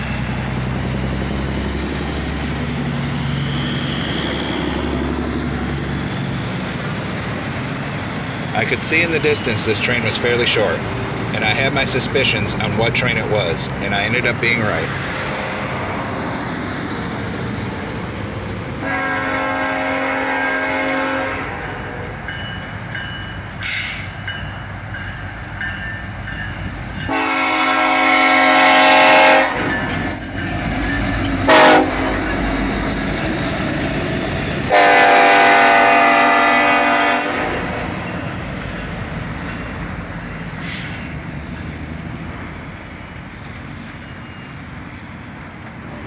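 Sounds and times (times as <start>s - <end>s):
train wheels on rails: 0.0s - 46.0s
locomotive air horn: 18.8s - 22.0s, 27.1s - 29.8s, 31.4s - 32.3s, 34.7s - 37.7s.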